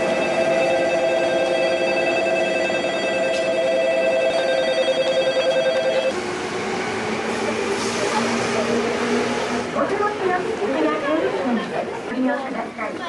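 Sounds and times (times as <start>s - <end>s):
electric bell ringing: 0.0s - 6.1s.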